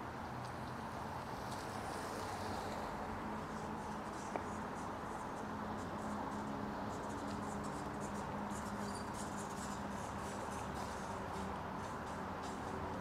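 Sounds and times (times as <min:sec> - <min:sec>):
low city street rumble: 0:00.0 - 0:13.0.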